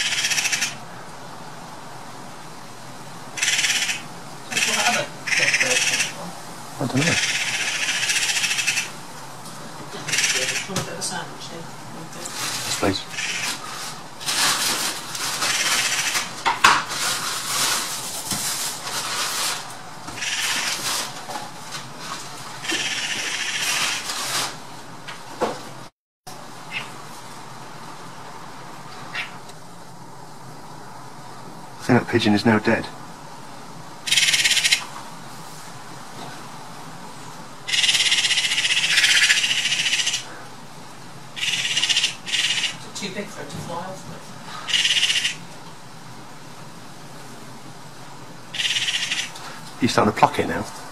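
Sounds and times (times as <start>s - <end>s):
magpie chattering: 0.0s - 0.8s, 3.4s - 6.2s, 7.0s - 9.0s, 10.0s - 10.8s, 13.1s - 13.6s, 15.5s - 16.2s, 20.2s - 20.7s, 22.6s - 24.0s, 34.1s - 34.9s, 37.7s - 40.3s, 41.4s - 42.8s, 44.7s - 45.4s, 48.5s - 49.4s.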